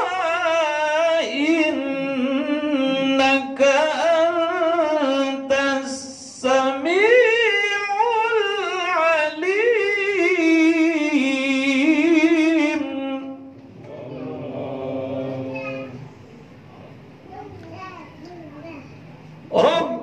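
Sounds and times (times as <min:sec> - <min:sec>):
man chanting into a microphone: 0:00.0 - 0:16.1, 0:19.5 - 0:20.0
quieter voice: 0:13.8 - 0:19.0.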